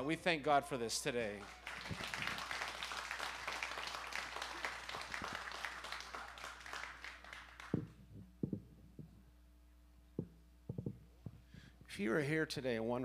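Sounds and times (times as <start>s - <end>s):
congregation applauding: 1.2s - 8.0s
scattered knocks and thumps: 7.8s - 9.2s, 10.2s - 11.4s.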